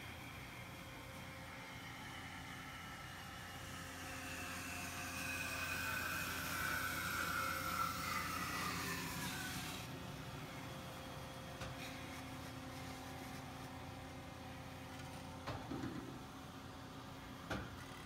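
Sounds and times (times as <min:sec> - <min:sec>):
saw whine sliding down: 0:00.0 - 0:10.0
band saw humming: 0:00.0 - 0:10.7.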